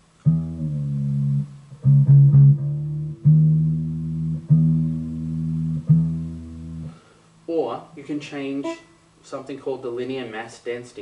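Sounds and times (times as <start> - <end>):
electric guitar low string plucked: 0.2 - 7.0.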